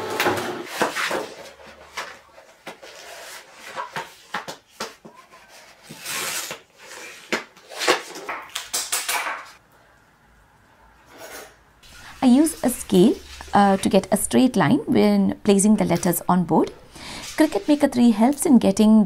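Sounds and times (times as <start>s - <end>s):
vinyl sheet rustling and crackling: 17.1s - 18.6s.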